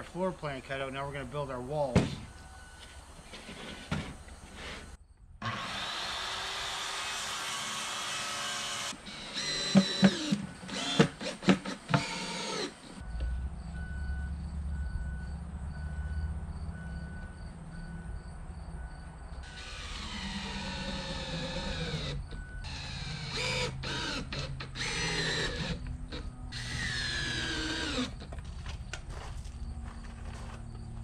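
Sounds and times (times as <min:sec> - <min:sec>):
cordless drill driving screws: 0:05.4 - 0:13.0, 0:19.4 - 0:28.3.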